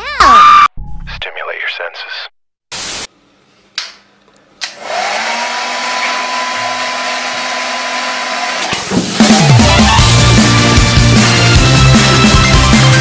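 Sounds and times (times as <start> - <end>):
hair dryer blowing: 4.6 - 10.0.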